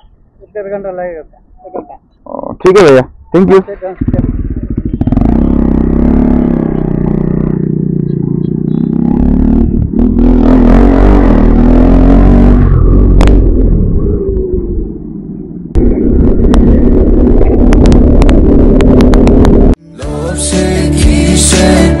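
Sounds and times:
motorcycle engine accelerating: 0:02.8 - 0:19.8
wind noise on microphone: 0:04.0 - 0:07.6, 0:12.4 - 0:19.8.

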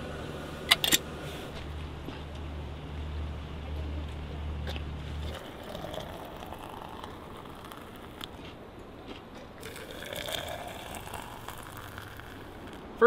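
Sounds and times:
steady low hum: 0:00.0 - 0:13.0
water trickling into thermos: 0:05.2 - 0:08.5, 0:09.6 - 0:12.9.

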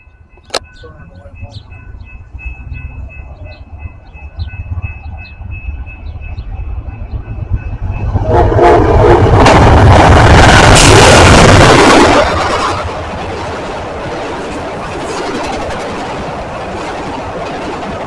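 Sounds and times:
train rumbling past: 0:00.0 - 0:18.0
locomotive horn: 0:08.1 - 0:09.7.

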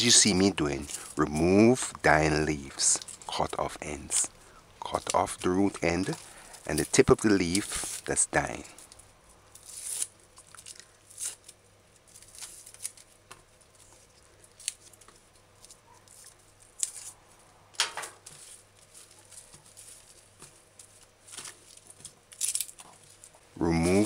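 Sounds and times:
snips and tears of leaves: 0:04.9 - 0:08.2, 0:08.8 - 0:13.1, 0:13.8 - 0:17.2, 0:20.9 - 0:22.9.

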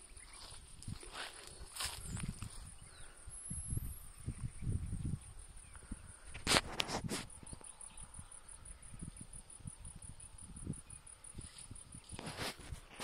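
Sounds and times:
insect trilling: 0:00.0 - 0:13.0.

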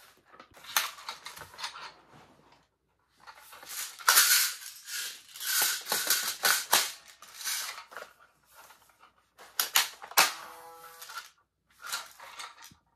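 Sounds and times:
toy blaster plastic clicks: 0:04.0 - 0:07.8.

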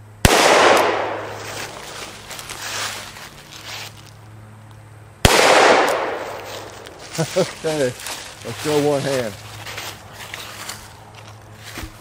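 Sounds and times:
revolver shots with echo: 0:00.3 - 0:01.4, 0:05.3 - 0:06.7.

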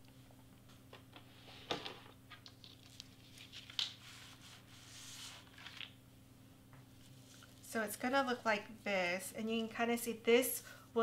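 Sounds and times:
paper rustling and scraping: 0:01.4 - 0:05.9.

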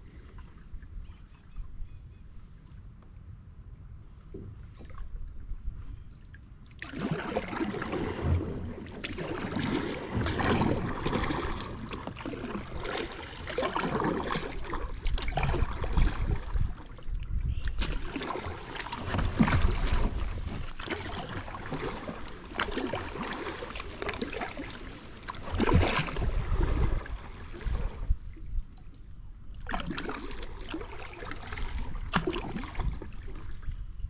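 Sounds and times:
paddle splashing water: 0:06.0 - 0:33.8
wind on microphone: 0:14.5 - 0:18.5, 0:25.5 - 0:29.6, 0:31.5 - 0:34.0.

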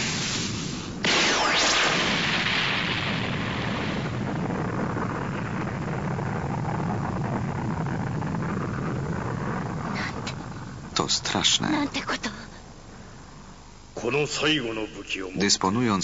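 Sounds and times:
energy blast hiss: 0:00.0 - 0:11.6
steady low rumble: 0:00.0 - 0:16.0.

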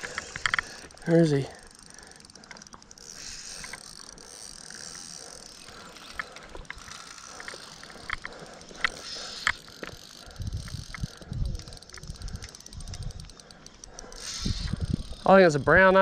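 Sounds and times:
steady high hiss: 0:00.0 - 0:02.2
fishing reel clicks: 0:00.0 - 0:16.0.

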